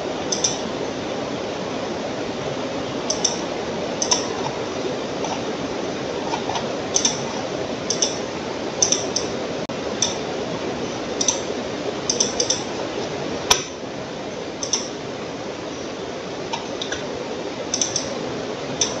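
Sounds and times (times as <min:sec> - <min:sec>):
steady background hiss: 0:00.0 - 0:19.0
computer mouse clicking: 0:00.3 - 0:00.6, 0:03.1 - 0:03.4, 0:04.0 - 0:04.6, 0:06.3 - 0:07.2, 0:07.9 - 0:08.2, 0:08.8 - 0:09.3, 0:11.2 - 0:11.5, 0:12.1 - 0:12.7, 0:14.6 - 0:14.9, 0:17.7 - 0:18.1.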